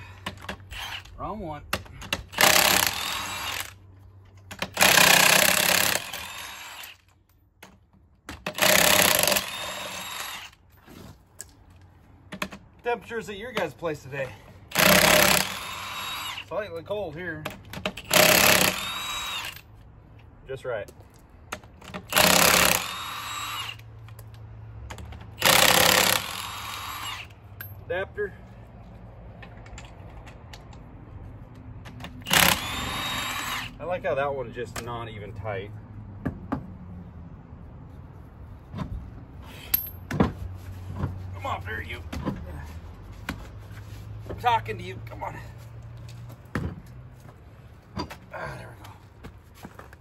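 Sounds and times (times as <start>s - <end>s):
impact wrench hammering: 4.5s - 7.0s, 8.3s - 10.5s, 14.7s - 16.4s, 17.8s - 19.6s, 21.5s - 23.8s, 24.9s - 27.3s, 32.0s - 33.7s.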